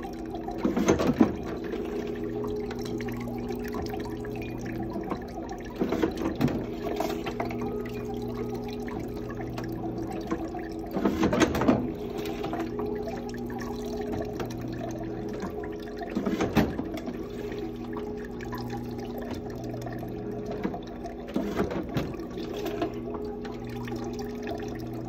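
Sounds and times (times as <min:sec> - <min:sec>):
juice trickling into a jug: 0:00.0 - 0:25.0
juicer clattering: 0:00.0 - 0:25.0
juicer motor hum: 0:00.0 - 0:25.0.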